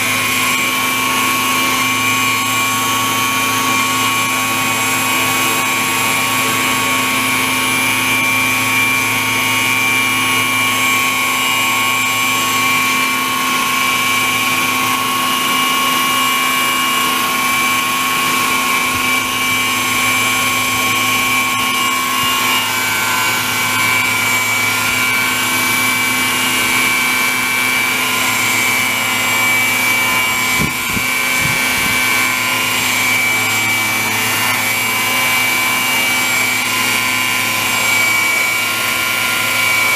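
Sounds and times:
model helicopter rotor whine: 0.0 - 39.9.

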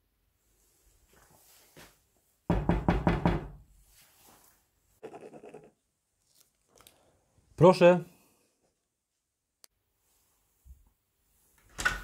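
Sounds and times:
knuckles knocking on door: 2.5 - 3.6.

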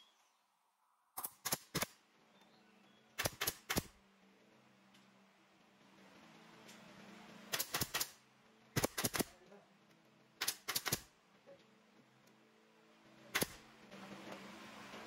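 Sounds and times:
nail gun firing into wood: 1.2 - 2.0, 3.2 - 4.0, 7.5 - 8.2, 8.8 - 9.4, 10.4 - 11.1, 13.3 - 13.6
low steady hum: 3.9 - 10.4, 11.1 - 15.0.

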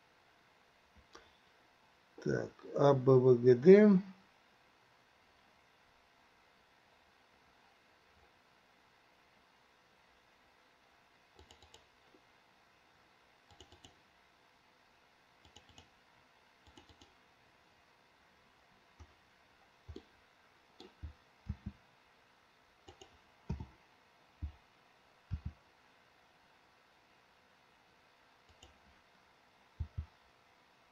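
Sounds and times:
mouse and keyboard clicks: 11.4 - 11.9, 13.5 - 14.0, 15.4 - 15.9, 16.6 - 17.2, 19.9 - 20.1, 22.8 - 23.7, 28.5 - 28.8.

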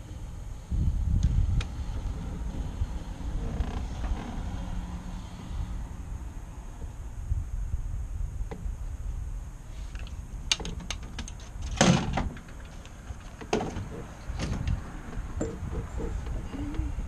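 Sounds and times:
low engine rumble: 0.0 - 17.0
knocks and rattles: 10.5 - 16.8.

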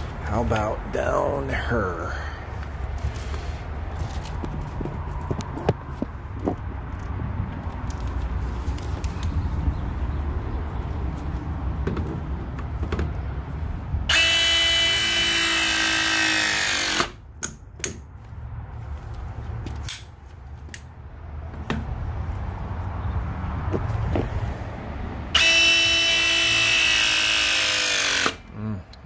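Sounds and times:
press tool motor whining: 14.1 - 17.2, 25.3 - 28.4.

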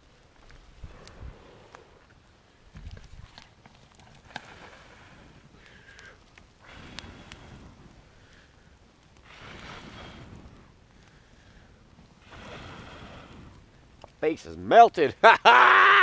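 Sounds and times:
burning wood snapping: 0.0 - 15.0
person blowing on a campfire: 0.8 - 2.1, 4.2 - 13.8.

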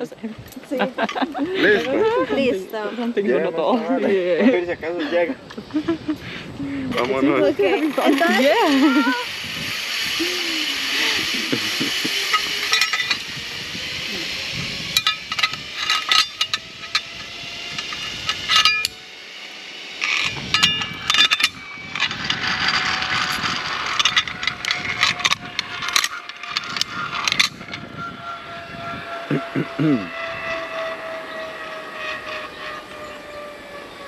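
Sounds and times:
zipline trolley running along cable: 0.5 - 34.0
faint falling whine: 7.5 - 34.0
carabiners clinking on steel cable: 7.8 - 19.2, 20.0 - 27.9.

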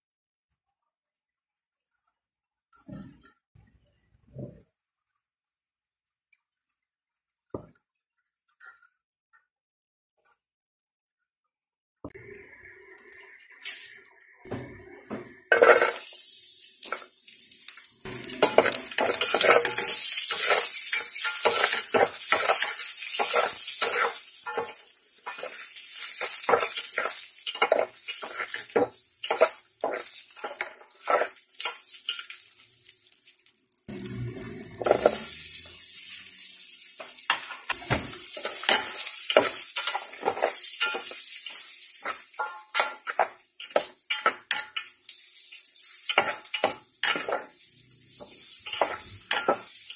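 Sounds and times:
garlic sizzling in hot oil: 12.6 - 49.9
spatula scraping metal pot: 14.5 - 16.1, 18.1 - 32.4, 33.9 - 45.0, 46.0 - 49.9.

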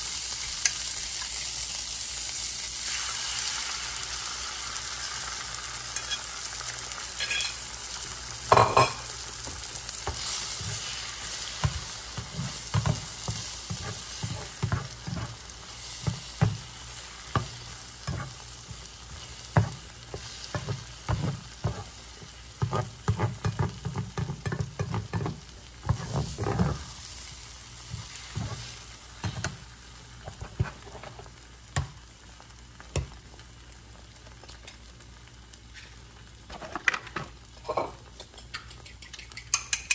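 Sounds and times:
eggs sizzling in frying pan: 0.0 - 39.9
spatula scraping pan: 7.1 - 7.7, 8.5 - 27.0, 27.8 - 29.6.

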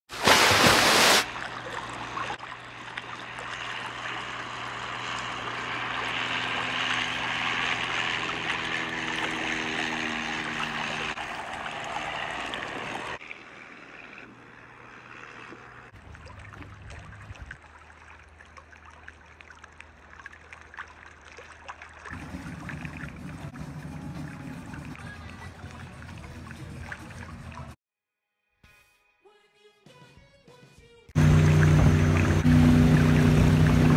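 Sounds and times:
water rushing past boat: 0.1 - 14.4, 15.0 - 27.8, 31.2 - 33.9
boat engine drone: 1.3 - 17.4, 22.1 - 27.8, 31.2 - 33.9.

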